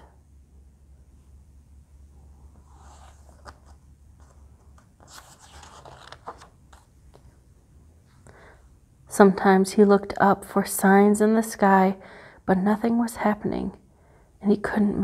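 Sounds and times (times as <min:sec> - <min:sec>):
low steady hum: 0:00.0 - 0:15.0
page rustling and turning: 0:02.5 - 0:07.3.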